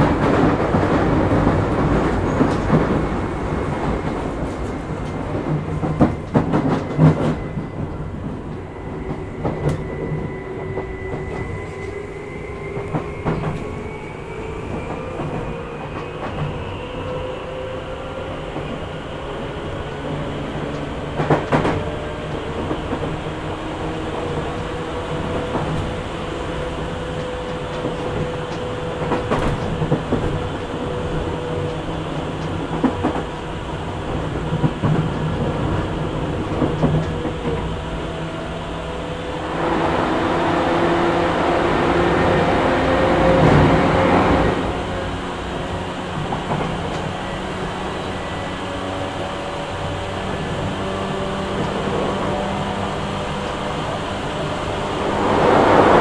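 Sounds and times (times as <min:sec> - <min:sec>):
rumble of train wheels: 0:00.0 - 0:56.0.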